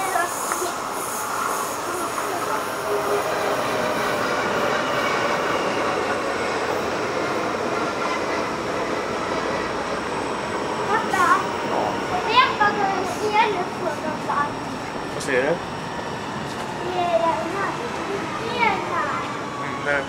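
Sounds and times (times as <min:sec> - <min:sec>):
wheels squealing: 0:00.0 - 0:14.8
train wheels rumbling on rails: 0:00.0 - 0:20.0.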